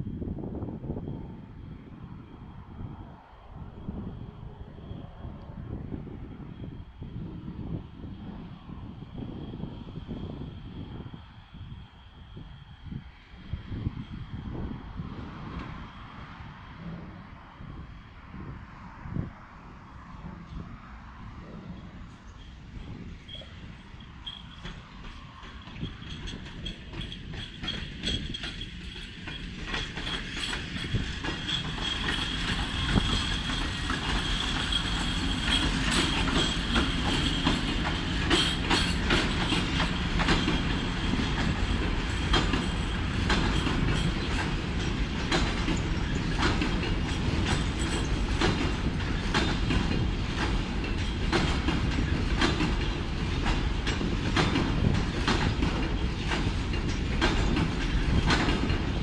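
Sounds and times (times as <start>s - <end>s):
freight train passing: 0.0s - 59.0s
wheel clatter over rail joints: 21.4s - 59.0s.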